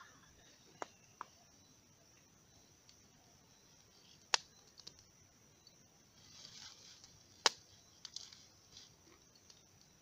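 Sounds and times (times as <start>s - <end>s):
wood fire crackling and popping: 4.2s - 5.2s, 7.0s - 9.9s.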